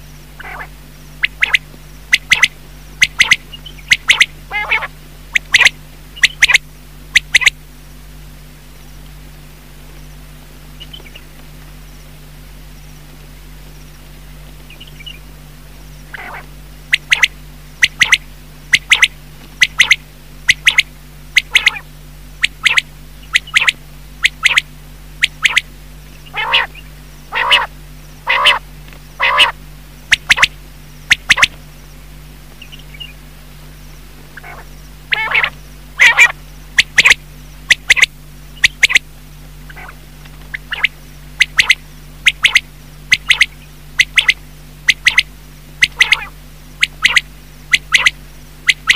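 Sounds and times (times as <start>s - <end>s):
quail calling: 0.4s - 7.6s, 10.8s - 11.3s, 14.6s - 15.3s, 16.0s - 31.6s, 32.6s - 33.2s, 34.3s - 39.0s, 39.6s - 48.9s.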